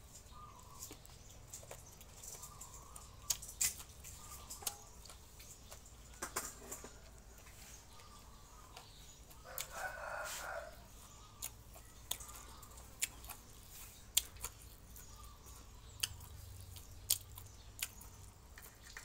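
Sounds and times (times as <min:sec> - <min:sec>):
clicks and taps of handling food: 0:00.8 - 0:08.1
rooster crowing: 0:09.4 - 0:10.9.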